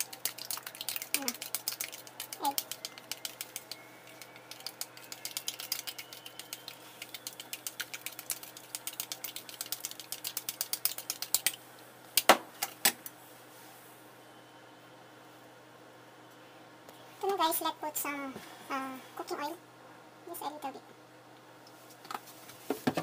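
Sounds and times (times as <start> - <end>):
chopsticks beating eggs in bowl: 0.0 - 11.6.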